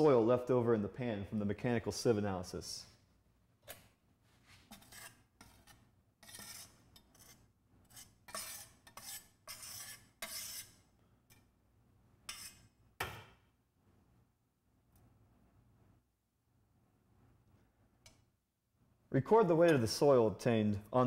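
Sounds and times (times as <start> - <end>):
metal spoon scraping sieve: 4.7 - 10.8.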